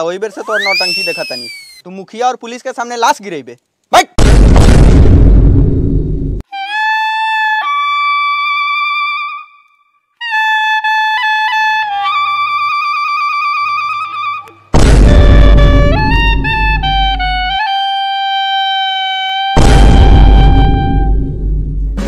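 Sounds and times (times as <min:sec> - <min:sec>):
loud boom: 0:04.2 - 0:06.4, 0:14.7 - 0:16.6, 0:19.6 - 0:22.0
wind instrument slow melody: 0:06.5 - 0:21.3
soft low accompaniment: 0:20.4 - 0:22.0.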